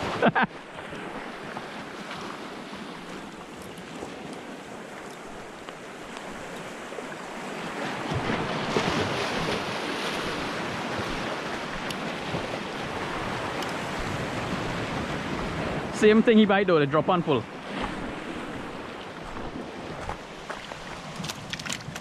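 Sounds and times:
wind on microphone: 0:00.0 - 0:16.0
small waves breaking on rocks: 0:00.0 - 0:22.0.

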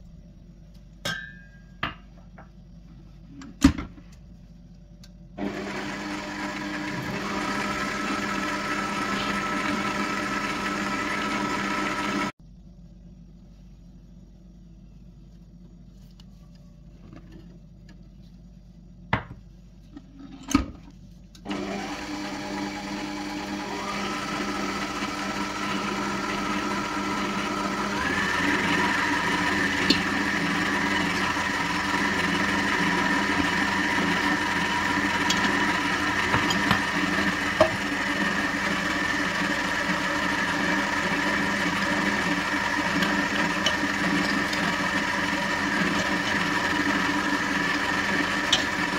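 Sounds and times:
electric mixer motor running: 0:05.4 - 0:12.4, 0:21.5 - 0:48.9.

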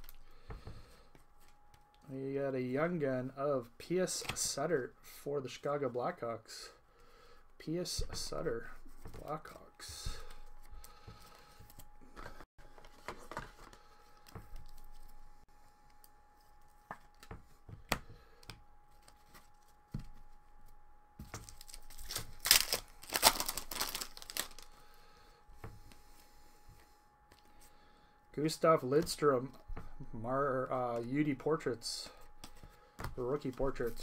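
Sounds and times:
cards clicking and rustling: 0:21.2 - 0:24.7
foil pack tearing: 0:21.4 - 0:24.7.

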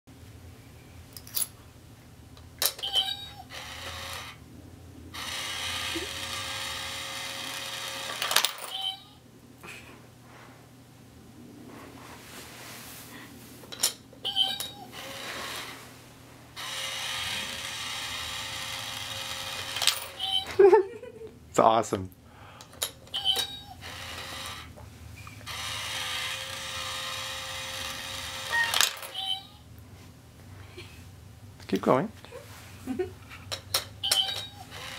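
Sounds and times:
small motor whirring: 0:03.0 - 0:04.4, 0:05.2 - 0:08.3, 0:14.9 - 0:15.8, 0:16.6 - 0:20.3, 0:23.2 - 0:24.7, 0:25.4 - 0:29.2, 0:34.1 - 0:34.9
coin clicking on plastic: 0:08.0 - 0:08.8, 0:19.6 - 0:20.2, 0:28.5 - 0:29.2.

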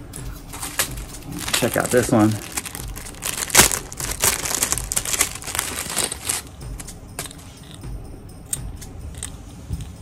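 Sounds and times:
plastic bag crinkling: 0:00.6 - 0:06.6.

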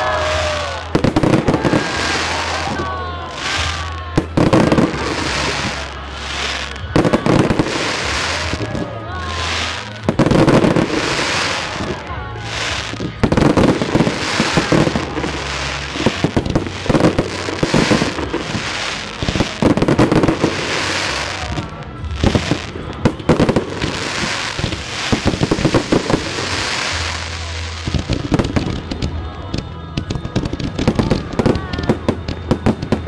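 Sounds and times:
fireworks bangs: 0:00.0 - 0:33.0
fireworks crackling: 0:00.0 - 0:33.0.

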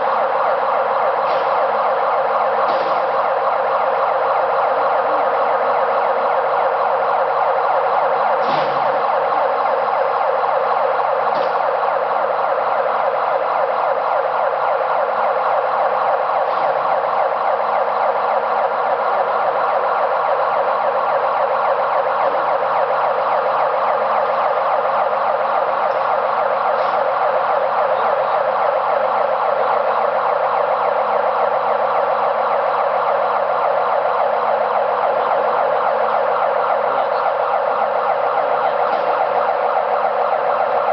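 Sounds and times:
warning siren: 0:00.0 - 0:40.9.

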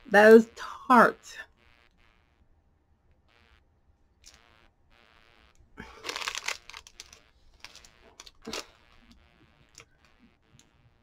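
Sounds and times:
wrapper crinkling: 0:05.8 - 0:08.9.

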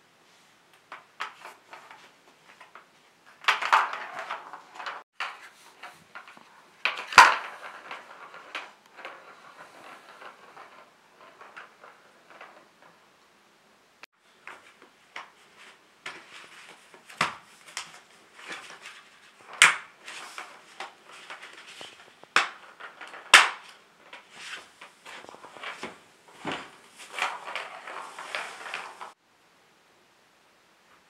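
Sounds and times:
plastic track pieces clicking: 0:17.2 - 0:25.8.

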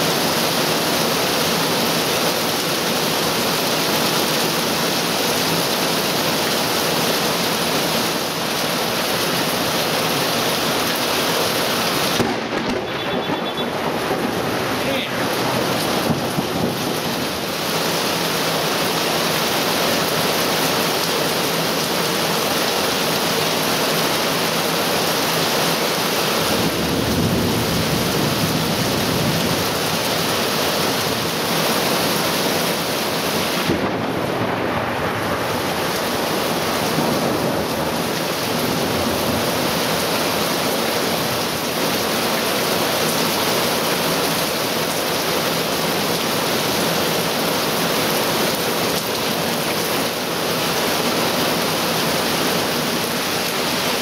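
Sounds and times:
heavy rain pouring: 0:00.0 - 0:54.0
low thunder rumble: 0:12.2 - 0:17.5, 0:26.6 - 0:29.8, 0:33.6 - 0:39.6.

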